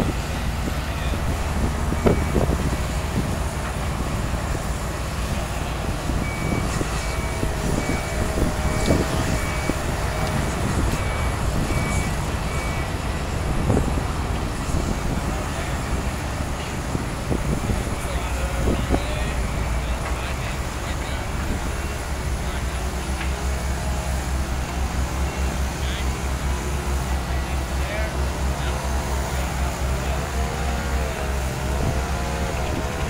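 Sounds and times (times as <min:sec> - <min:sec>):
diesel engines running: 0:00.0 - 0:33.0.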